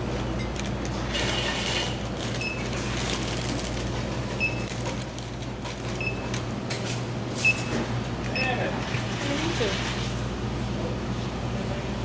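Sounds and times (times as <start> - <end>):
store background noise: 0.0 - 12.0
high electronic checkout beeps: 2.4 - 2.7, 4.4 - 4.7, 6.0 - 6.4, 7.4 - 8.6.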